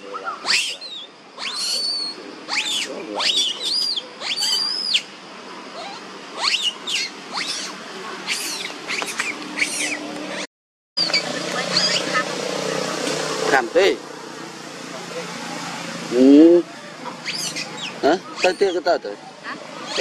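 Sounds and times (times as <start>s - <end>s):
young monkey squealing: 0.0s - 5.1s, 5.7s - 12.3s, 16.9s - 20.0s.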